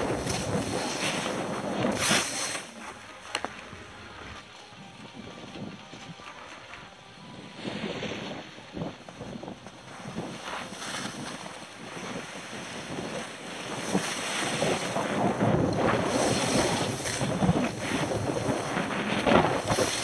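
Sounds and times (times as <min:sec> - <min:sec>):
skis scraping over snow: 0:00.0 - 0:20.0
wind on microphone: 0:00.0 - 0:20.0.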